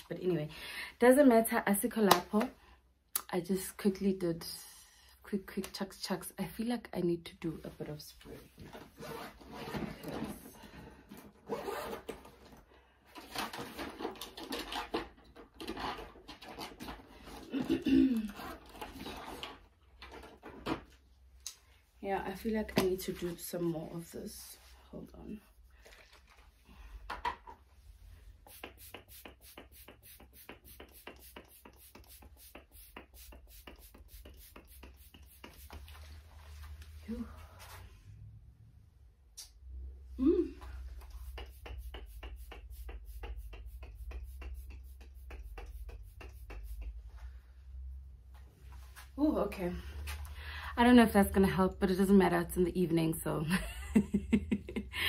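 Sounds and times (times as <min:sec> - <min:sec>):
soft makeup brush strokes: 0:27.9 - 0:38.0
spray bottle hissing: 0:28.4 - 0:35.8, 0:41.2 - 0:46.8.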